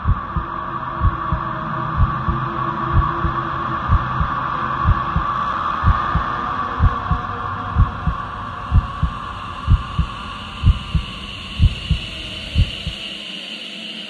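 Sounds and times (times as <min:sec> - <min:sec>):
heartbeat thumps: 0:00.0 - 0:01.4, 0:02.0 - 0:07.2, 0:07.8 - 0:12.0, 0:12.6 - 0:13.0
steady hum: 0:00.0 - 0:13.1.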